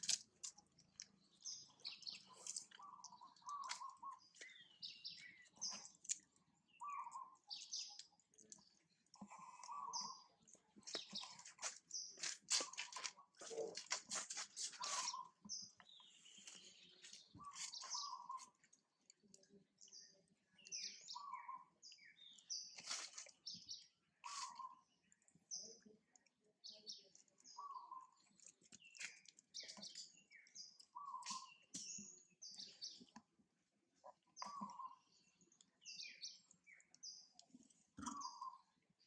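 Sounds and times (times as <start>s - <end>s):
high bird chirps: 0.8s - 8.2s, 9.2s - 13.7s, 14.6s - 18.6s, 20.6s - 25.7s, 26.7s - 33.1s, 34.4s - 37.4s, 38.0s - 38.8s
low bird call: 6.8s - 7.4s.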